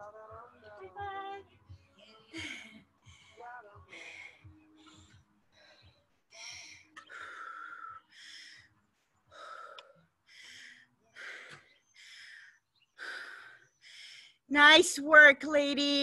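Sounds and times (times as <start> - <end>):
woman breathing hard: 1.7 - 14.5.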